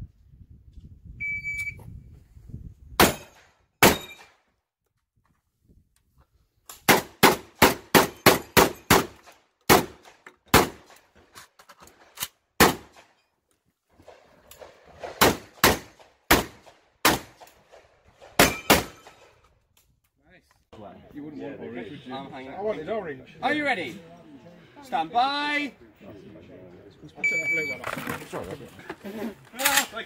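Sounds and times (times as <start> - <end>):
shotgun shots: 3.0 - 4.3, 6.9 - 10.9, 12.6 - 13.1, 15.0 - 17.5, 18.3 - 19.2.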